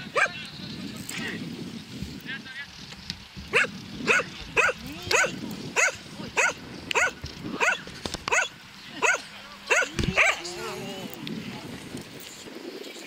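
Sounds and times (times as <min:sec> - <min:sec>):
dog barking: 0:00.1 - 0:00.4, 0:03.5 - 0:10.5.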